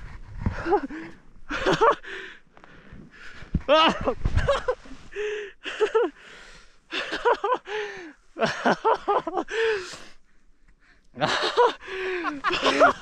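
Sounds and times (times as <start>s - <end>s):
hard breathing: 2.0s - 3.6s, 5.0s - 5.6s, 6.2s - 6.8s, 7.7s - 8.2s, 9.5s - 11.1s, 11.8s - 13.0s
person gasping with effort: 5.1s - 5.6s, 11.8s - 13.0s.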